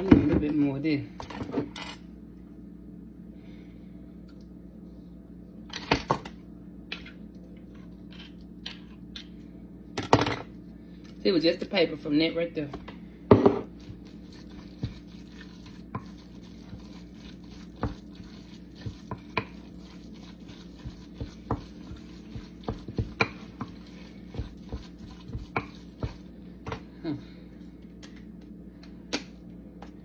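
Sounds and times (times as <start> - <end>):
spoon mashing thick mixture: 13.6 - 26.8.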